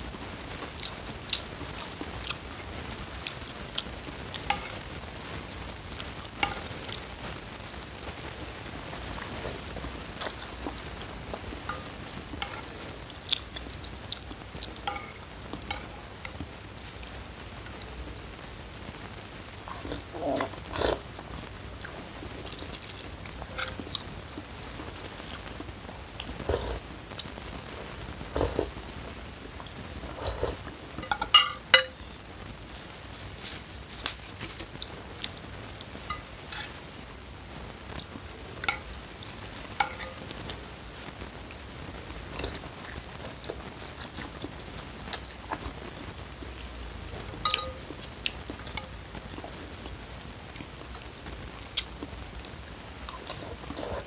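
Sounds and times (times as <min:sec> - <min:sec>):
slurping and chewing: 0:00.5 - 0:18.3, 0:19.6 - 0:27.4, 0:28.2 - 0:28.9, 0:29.5 - 0:32.1, 0:33.3 - 0:36.9, 0:37.9 - 0:54.0
spoon and fork scraping bowl: 0:11.7 - 0:12.8, 0:14.8 - 0:16.4, 0:23.5 - 0:23.8, 0:47.4 - 0:47.8.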